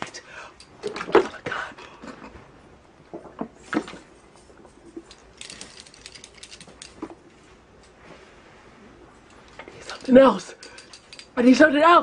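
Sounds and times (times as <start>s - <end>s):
person gulping water: 3.0s - 5.0s.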